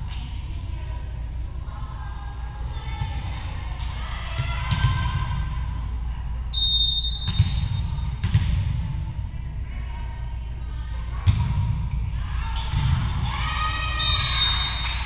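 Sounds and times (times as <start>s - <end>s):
referee's whistle blast: 6.6s - 7.8s
volleyball bouncing on wooden floor: 7.3s - 8.8s.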